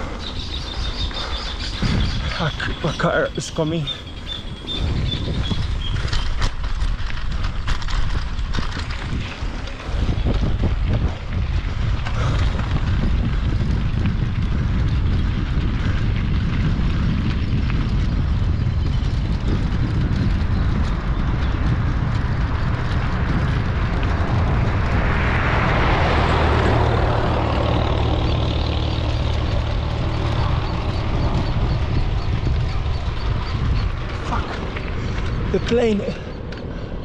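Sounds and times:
engine rumble: 0.0s - 37.0s
wind buffeting the microphone: 0.0s - 37.0s.

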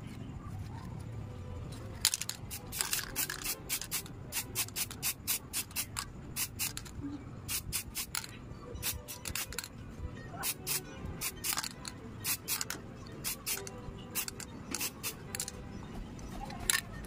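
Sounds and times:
spray paint can hissing: 2.1s - 9.7s, 10.4s - 15.5s.

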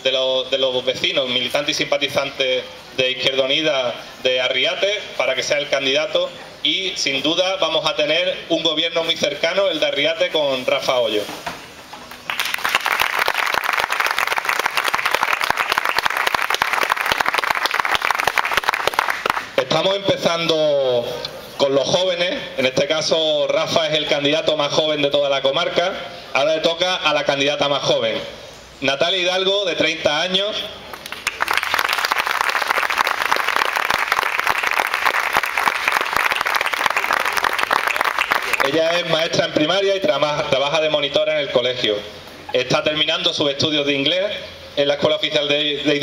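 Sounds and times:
audience applauding: 12.2s - 19.5s, 30.9s - 39.0s.

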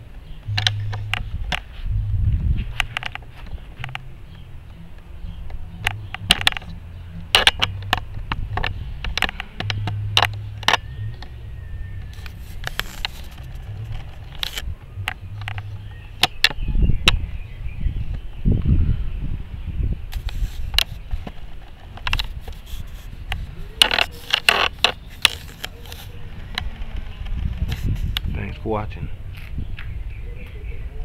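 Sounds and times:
low rumble: 0.0s - 20.1s
camera handling clicks and knocks: 12.1s - 16.6s.

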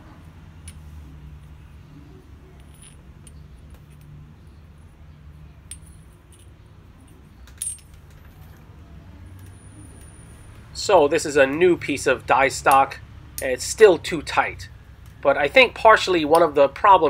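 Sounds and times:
metal pieces clinking: 2.4s - 4.3s, 5.6s - 8.6s.

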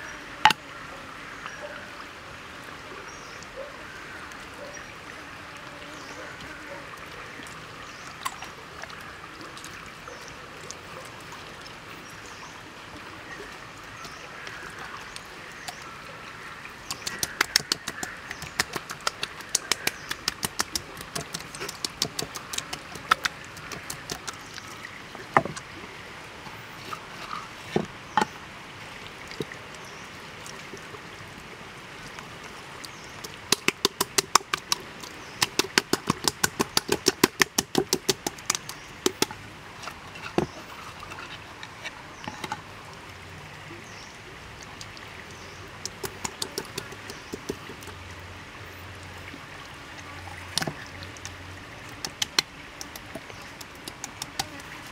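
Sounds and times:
hands slapping raw chicken: 16.9s - 24.4s, 33.3s - 34.8s, 35.4s - 39.3s, 45.9s - 47.8s, 52.0s - 54.7s.

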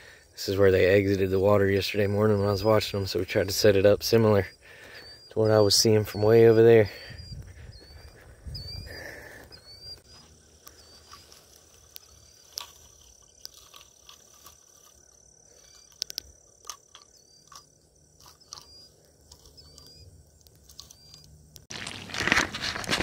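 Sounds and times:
high chirp with rising hook: 2.2s - 12.6s, 17.0s - 21.4s.

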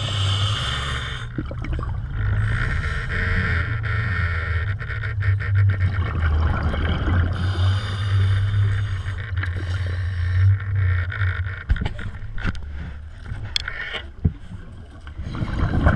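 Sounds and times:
low mechanical hum underwater: 0.0s - 15.9s
sharp clicks and knocks: 10.4s - 14.4s.

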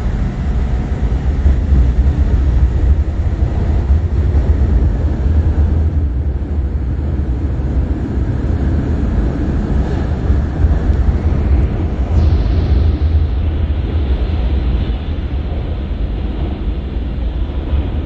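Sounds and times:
metro train rumbling past: 0.0s - 18.0s.

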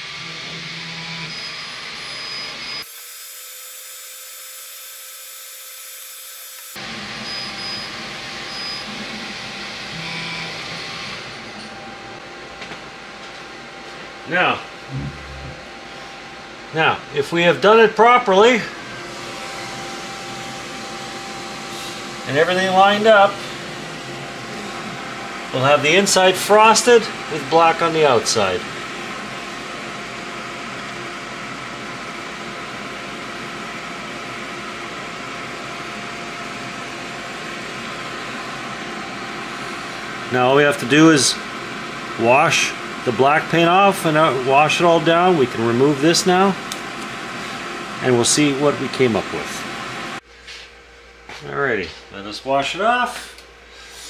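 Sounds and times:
laser engraver fans humming: 0.0s - 54.0s
brief higher tone: 14.9s - 16.2s.

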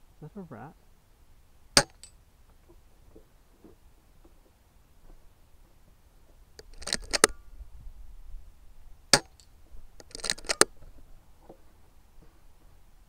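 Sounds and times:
rifle mechanical clicks: 6.6s - 7.4s, 9.1s - 10.8s.

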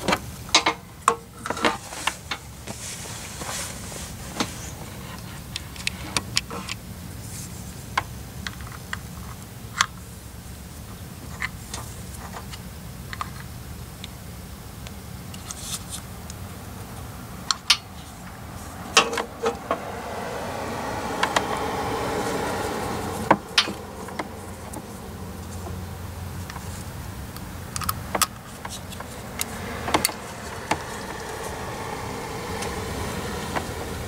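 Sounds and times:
steady low rumble: 16.1s - 34.0s.

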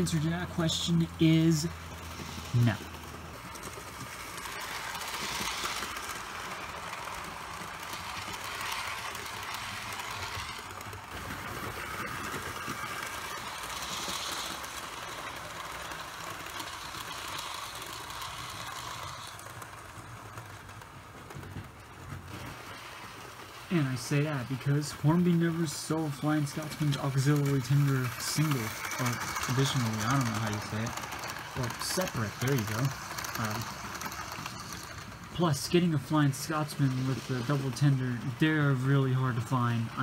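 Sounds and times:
electric motor whirring: 0.0s - 20.0s, 24.7s - 35.9s
wheels rattling on rails: 0.0s - 40.0s.

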